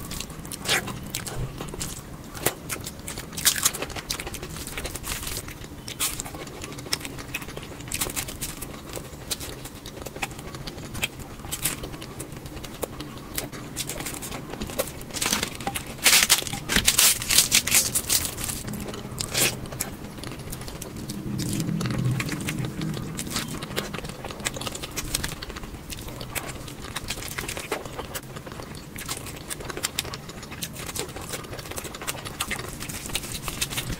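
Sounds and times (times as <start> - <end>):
chewing and crunching food: 0.0 - 33.9
low hum: 4.1 - 28.9.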